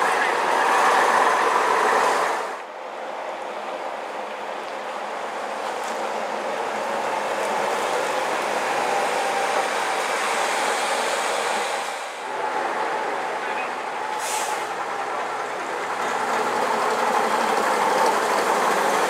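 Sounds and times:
coach engine and tyres passing: 0:00.0 - 0:19.0.

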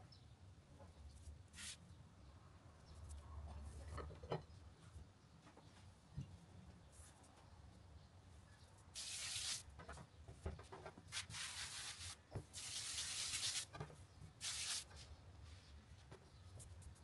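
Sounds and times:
hand brushing flour on surface: 0:01.6 - 0:01.8, 0:09.0 - 0:09.6, 0:11.1 - 0:13.7, 0:14.4 - 0:15.7.

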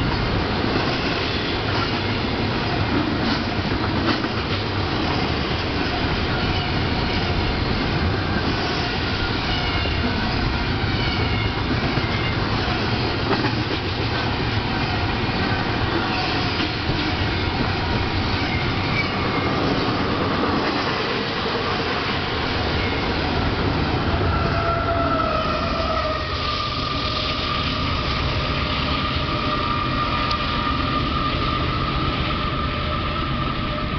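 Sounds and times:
steel wheels clattering on rail: 0:00.0 - 0:23.3.

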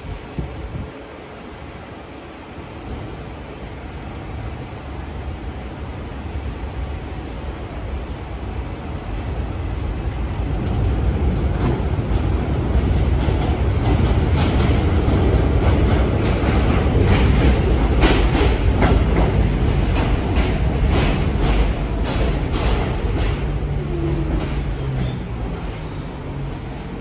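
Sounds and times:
subway train rumble: 0:00.0 - 0:27.0
wheels clacking over rail joints: 0:10.7 - 0:26.8.

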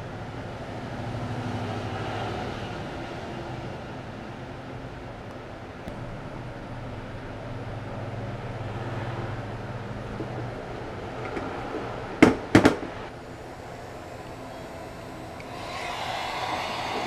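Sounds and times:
low steady hum: 0:05.2 - 0:12.2, 0:12.9 - 0:17.0.

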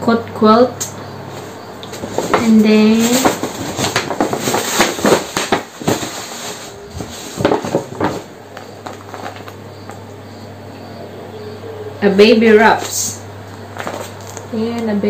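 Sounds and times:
tissue paper rustling: 0:01.3 - 0:09.6.

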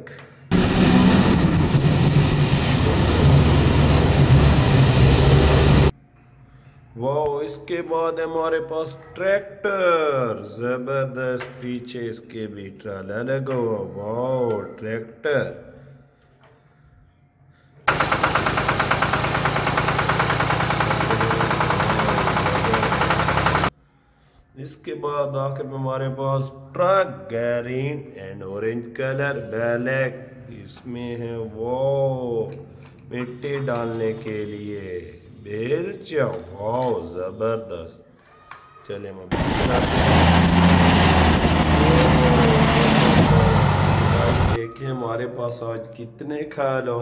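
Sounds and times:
vehicle running: 0:00.5 - 0:05.9, 0:17.9 - 0:23.7, 0:39.3 - 0:44.6
tractor engine chugging: 0:17.9 - 0:23.7.

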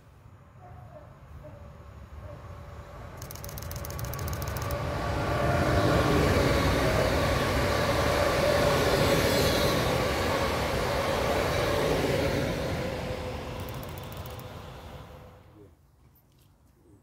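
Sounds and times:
electric train whine: 0:02.4 - 0:15.6
train wheels rumbling on rail: 0:03.1 - 0:15.4.

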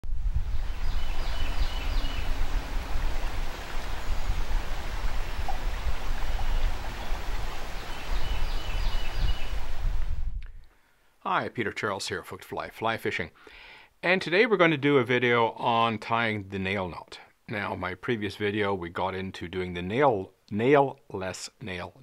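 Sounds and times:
river water rushing: 0:00.4 - 0:09.9.

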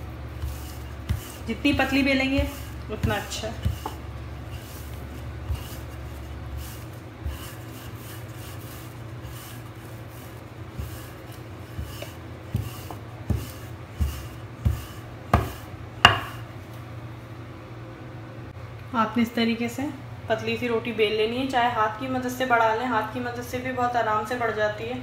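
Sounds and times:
rolling pin rubbing dough: 0:00.0 - 0:16.5
steady low hum: 0:00.0 - 0:25.0
wooden knocks: 0:15.4 - 0:16.4.

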